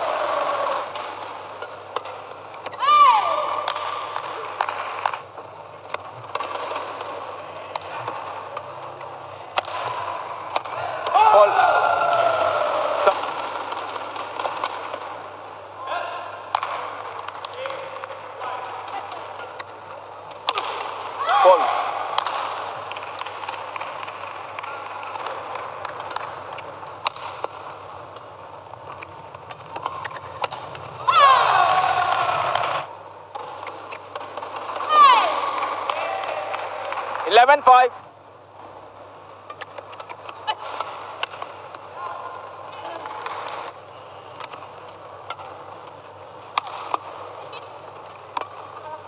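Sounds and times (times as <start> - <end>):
arena ambience: 0.0 - 49.0
rackets striking shuttlecock: 0.4 - 2.8, 3.6 - 7.1, 7.7 - 11.2, 16.4 - 21.2, 22.0 - 31.0, 39.4 - 48.8.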